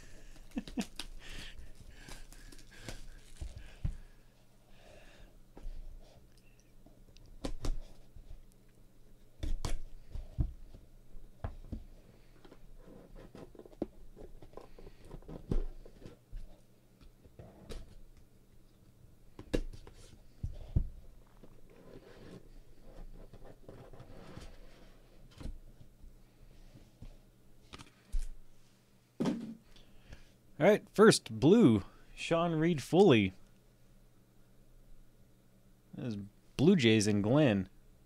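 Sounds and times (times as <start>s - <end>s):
faint low hum: 0.0s - 38.0s
rubbing and sliding of box: 21.4s - 25.1s.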